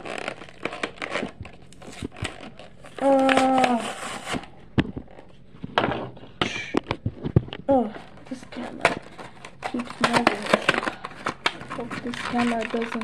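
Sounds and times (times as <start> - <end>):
plastic packaging crinkling and tearing: 0.0 - 5.4, 8.0 - 13.0.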